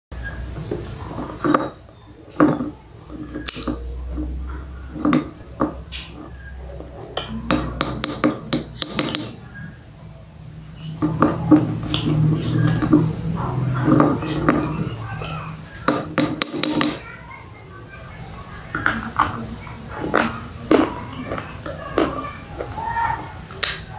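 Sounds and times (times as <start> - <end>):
pencils clinking against pots: 0.7 - 9.5, 11.0 - 17.2.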